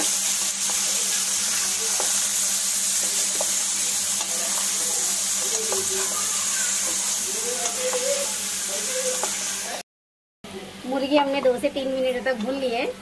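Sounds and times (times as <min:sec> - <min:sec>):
chicken sizzling in a pot: 0:00.0 - 0:09.8.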